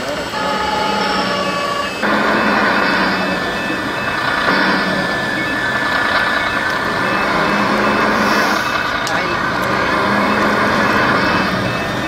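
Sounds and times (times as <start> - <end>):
thin high tone: 0.0 - 12.0.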